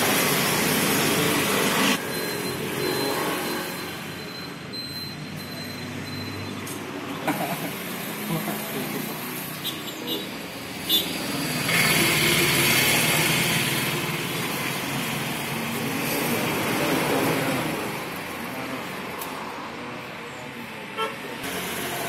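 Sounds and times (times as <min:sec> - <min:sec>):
traffic: 0:00.0 - 0:22.0
brief tone: 0:02.0 - 0:06.6.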